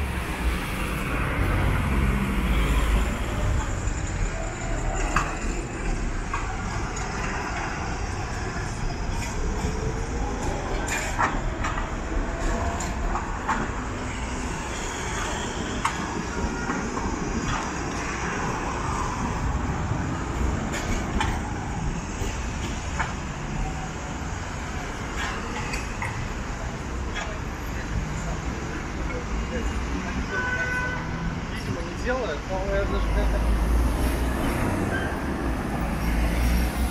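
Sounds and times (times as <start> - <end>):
tram wheels rumbling on rails: 0.0 - 36.9.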